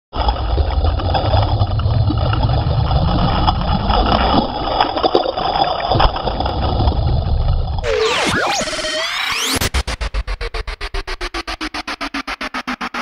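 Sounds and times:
motorboat engine rumbling: 0.2s - 7.8s
water rushing past hull: 0.2s - 7.8s.

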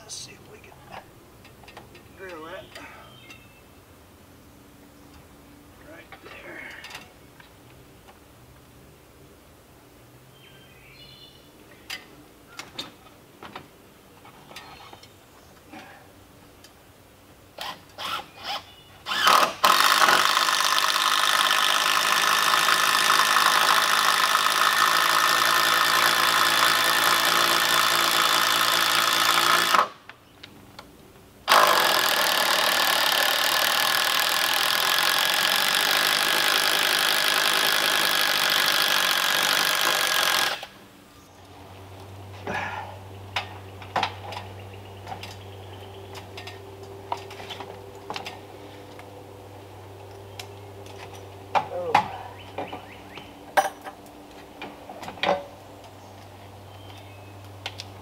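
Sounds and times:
electric drill boring into wood: 17.6s - 30.0s, 31.5s - 40.8s.

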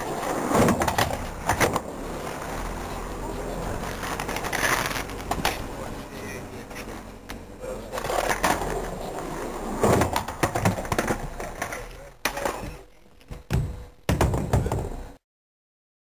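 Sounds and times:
skateboard clacking on concrete: 0.0s - 1.9s, 3.5s - 5.6s, 7.9s - 12.8s
indistinct voices: 1.4s - 13.4s.

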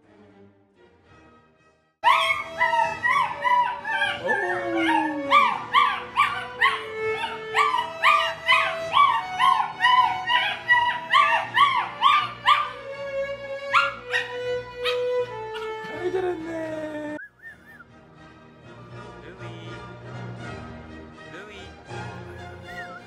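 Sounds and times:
puppy howling and yipping: 2.0s - 12.8s, 13.7s - 15.8s.

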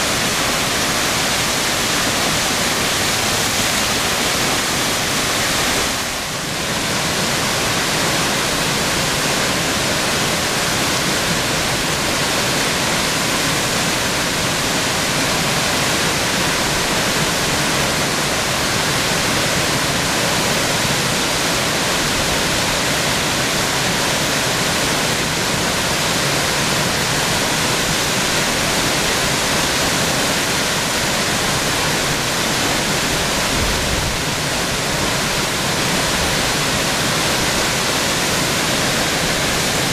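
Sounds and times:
waterfall rushing onto rocks: 0.0s - 39.9s.

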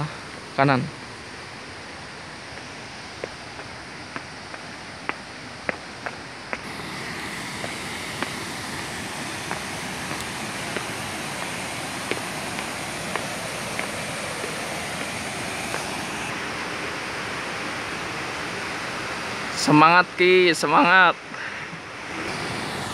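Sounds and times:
waterfall rushing: 1.3s - 22.9s
footsteps on concrete steps: 2.5s - 6.7s, 7.6s - 16.1s.

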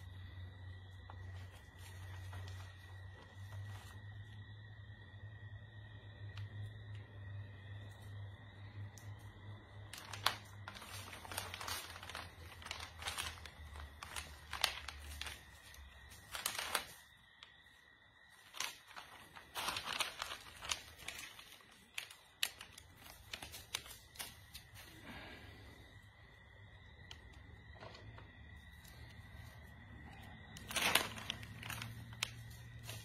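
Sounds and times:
crinkling and rustling: 0.0s - 4.4s, 8.8s - 33.0s.

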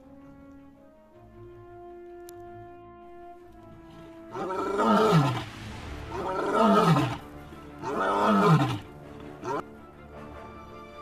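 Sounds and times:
background music: 0.0s - 11.0s.

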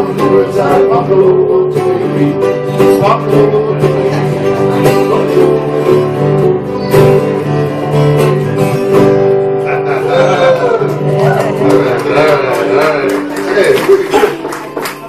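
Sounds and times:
person singing: 0.0s - 6.0s
acoustic guitars and ukulele strumming: 0.0s - 15.0s.

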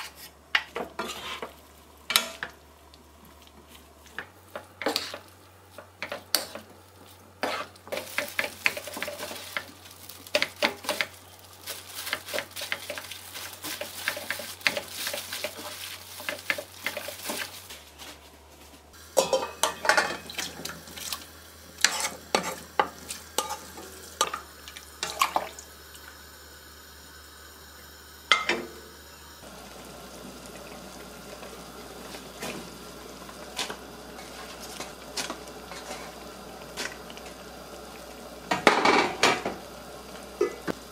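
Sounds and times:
spatula clacking and scraping pan: 0.0s - 2.6s, 4.2s - 6.7s, 7.4s - 9.7s, 12.0s - 17.6s, 19.2s - 21.1s, 21.8s - 24.4s, 33.6s - 36.2s
food sizzling: 0.0s - 18.3s, 18.9s - 40.9s.

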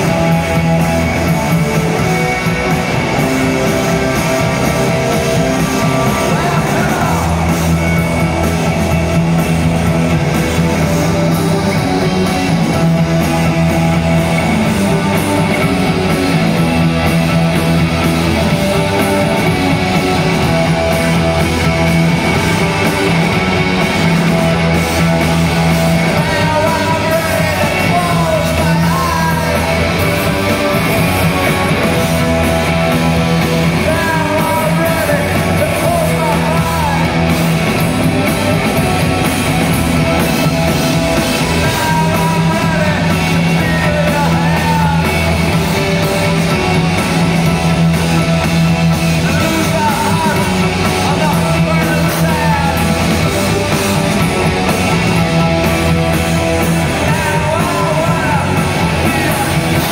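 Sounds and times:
rock band playing live: 0.0s - 59.9s
lead vocal singing: 3.7s - 8.1s, 25.0s - 37.8s, 41.1s - 46.9s, 49.0s - 54.0s, 56.5s - 59.9s.

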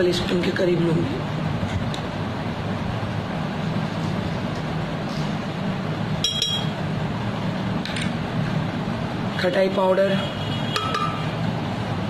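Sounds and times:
spoon clinking against glass jar: 6.2s - 6.8s.

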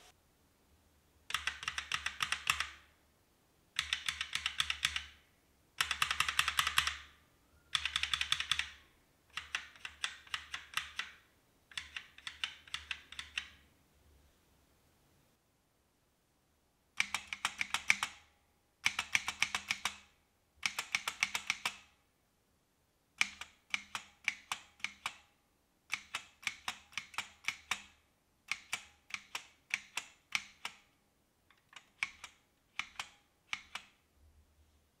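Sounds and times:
keyboard typing: 1.3s - 2.9s, 3.8s - 5.2s, 5.8s - 13.6s, 17.0s - 22.0s, 25.9s - 34.0s.

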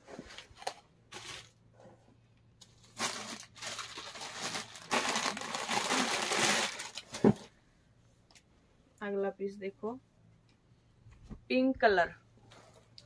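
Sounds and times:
plastic packaging crinkling: 0.4s - 1.6s, 2.6s - 7.5s.

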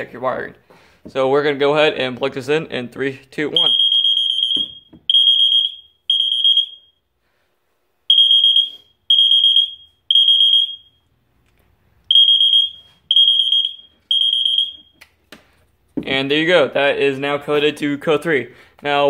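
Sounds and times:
fire alarm beeping: 3.5s - 7.1s, 8.0s - 11.2s, 12.1s - 15.0s.

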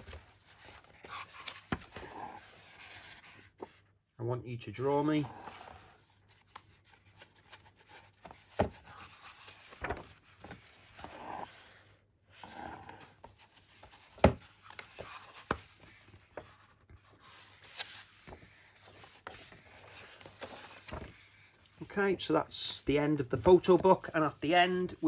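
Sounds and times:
book pages rustling: 0.0s - 4.0s, 5.1s - 25.0s.

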